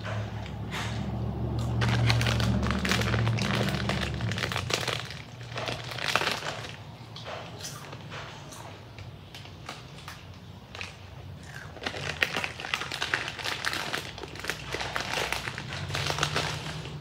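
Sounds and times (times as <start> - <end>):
chips crunching while chewed: 1.5 - 6.9, 9.3 - 17.0
chip bag crackling: 1.7 - 6.8, 10.7 - 17.0.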